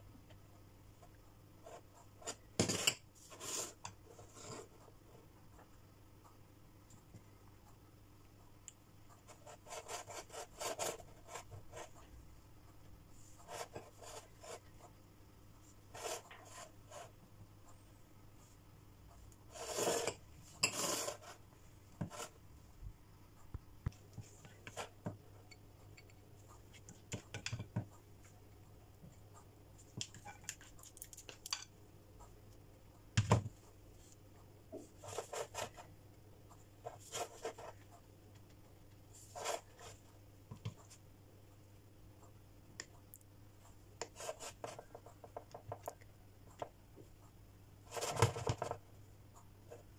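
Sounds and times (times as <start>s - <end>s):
spoon scraping glass cups: 19.6s - 21.2s.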